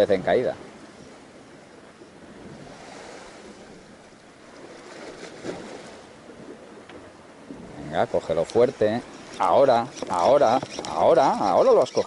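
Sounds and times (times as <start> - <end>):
wind on microphone: 0.9 - 4.0
water washing against boat hull: 2.3 - 12.0.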